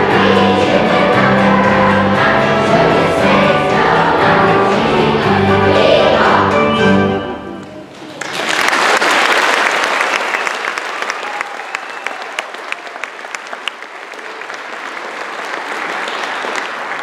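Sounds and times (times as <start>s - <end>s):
audience applauding: 7.9s - 17.0s.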